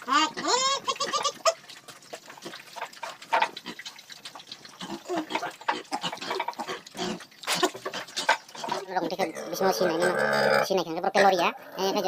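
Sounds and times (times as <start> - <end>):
pigs snuffling and chomping: 0.0 - 10.0
pigs grunting: 4.7 - 12.0.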